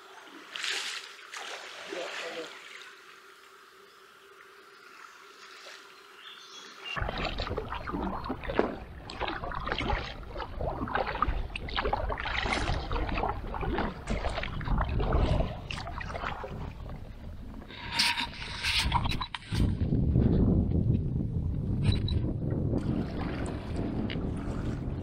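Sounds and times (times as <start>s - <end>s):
kayak paddle splashing: 0.0s - 3.1s, 5.4s - 19.7s, 22.8s - 25.0s.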